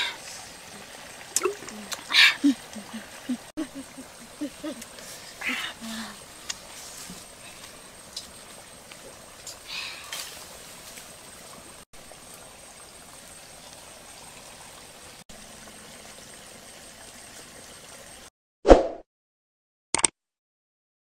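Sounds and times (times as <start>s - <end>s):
steady rushing hiss: 1.8s - 15.0s.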